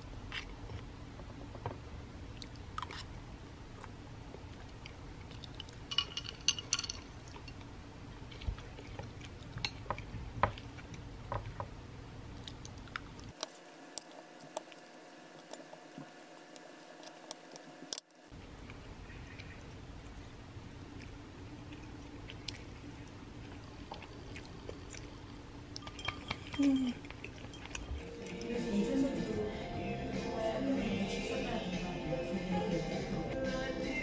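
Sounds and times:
chewing: 2.3 - 5.9, 7.2 - 11.6, 12.3 - 29.0.

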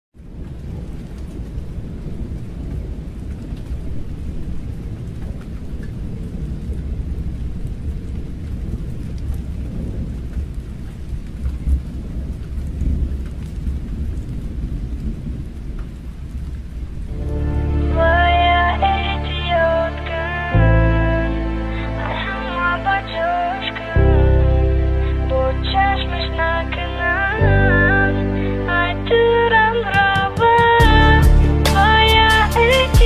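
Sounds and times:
thunder rumble: 0.2 - 19.7
rain: 0.2 - 33.0.

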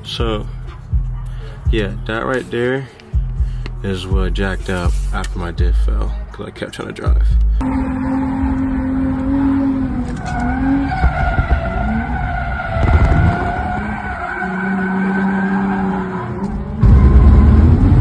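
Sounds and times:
tires squealing: 7.6 - 18.0.

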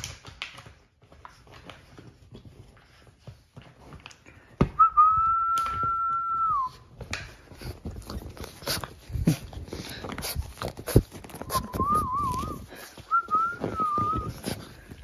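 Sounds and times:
puppies scuffling on couch: 0.0 - 15.0
high whistle-like tone: 4.8 - 6.9, 11.4 - 14.5.

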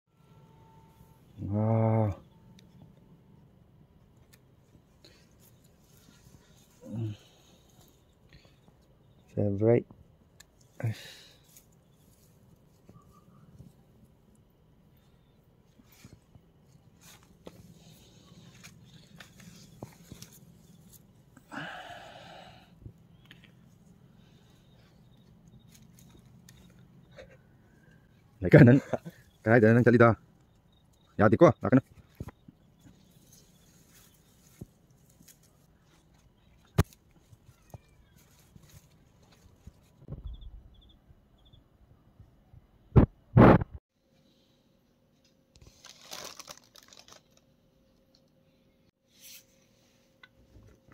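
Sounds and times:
plant stems and grass rustling: 4.2 - 8.8, 10.2 - 27.9, 28.5 - 40.1, 45.6 - 47.4.

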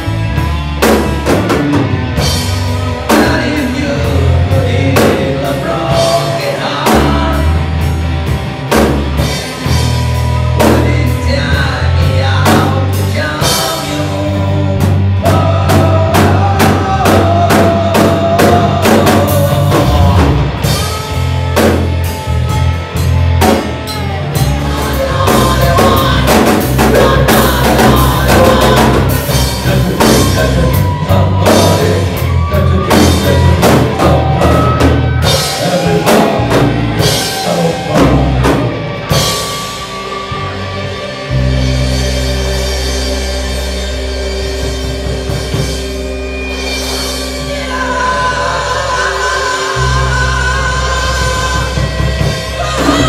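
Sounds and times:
bass guitar: 0.0 - 53.0
drum kit: 0.0 - 53.0
electric guitars: 0.0 - 53.0
man singing: 0.4 - 8.0, 10.5 - 21.7, 24.0 - 39.6, 46.5 - 53.0.

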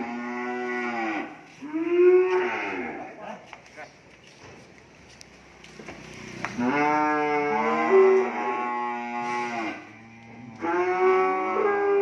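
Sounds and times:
cow mooing: 0.0 - 3.2, 6.6 - 12.0.

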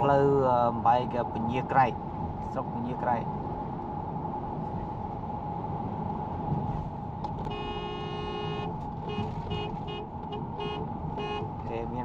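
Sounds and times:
road and engine rumble: 0.0 - 12.0
vehicle horn honking: 7.4 - 11.5.

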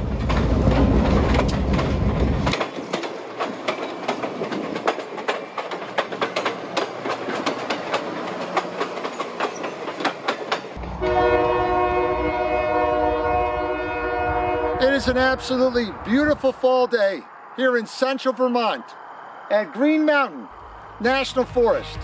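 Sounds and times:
train wheels clickety-clack: 0.0 - 11.0
locomotive engine rumble: 0.0 - 16.6.

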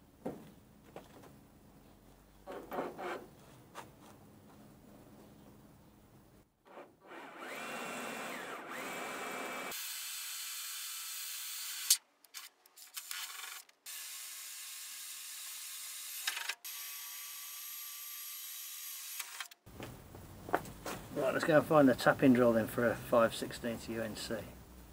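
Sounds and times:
cordless drill boring into steel: 7.0 - 12.0.

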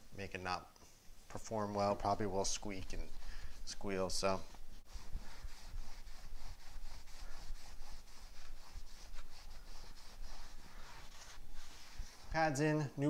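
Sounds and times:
cloth rubbing on brake rotor: 1.2 - 12.6.

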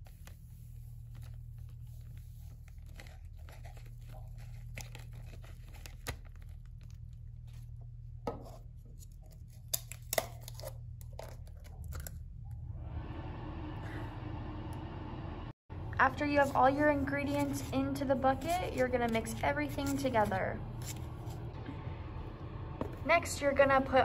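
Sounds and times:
plastic bag crinkling: 1.0 - 7.6.

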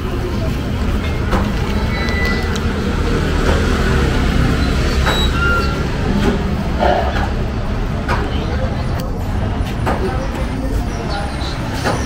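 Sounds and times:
heavy vehicle engine rumbling: 0.0 - 12.0
brief high squeaks: 5.0 - 5.9.

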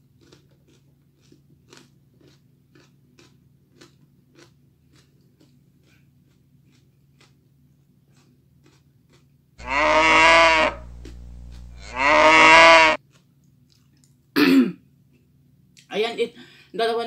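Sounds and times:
cow mooing: 9.6 - 13.0
steady low hum: 9.6 - 13.0.

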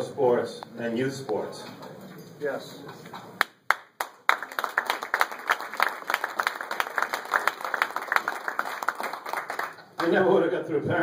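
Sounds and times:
audience applauding: 3.3 - 10.2.

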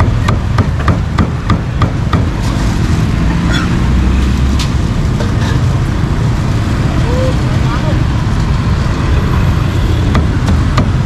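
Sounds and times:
cleaver chopping on wooden block: 0.0 - 2.3
street traffic rumble: 0.0 - 11.0.

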